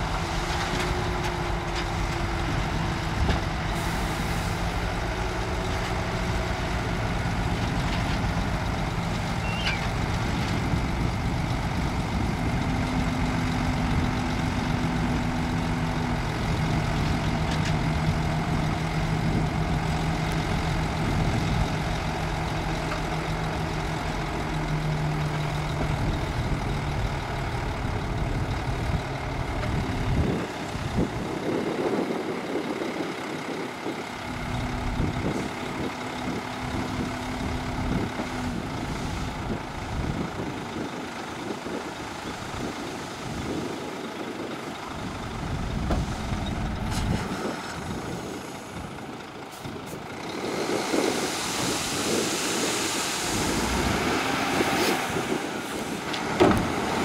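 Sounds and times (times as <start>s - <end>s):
dump truck diesel engine running: 0.0s - 57.0s
sand dumping from truck bed: 50.4s - 57.0s.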